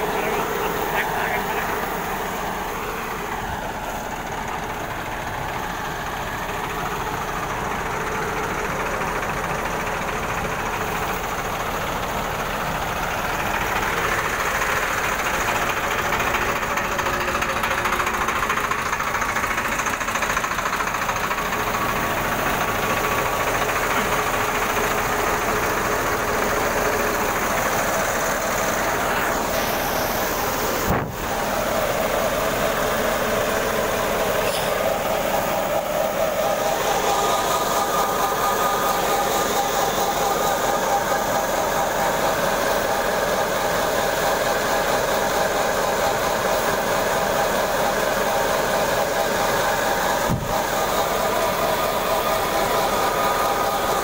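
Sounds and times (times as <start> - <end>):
diesel engine working: 0.0 - 54.0
threshing machine drumming: 50.2 - 51.0.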